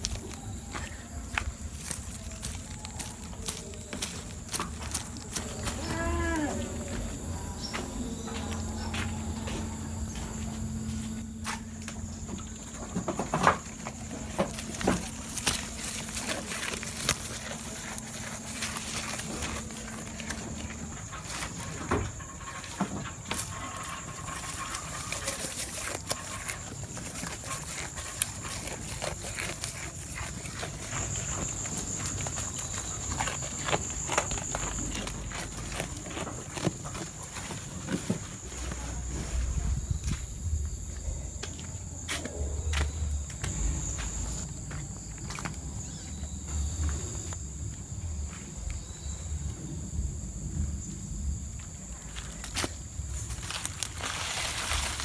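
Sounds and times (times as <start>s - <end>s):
leaves rustling and tearing: 0.0s - 7.3s, 13.5s - 39.6s, 52.1s - 55.0s
goats chewing: 0.0s - 39.8s, 52.1s - 55.0s
high-pitched insect chorus: 0.0s - 55.0s.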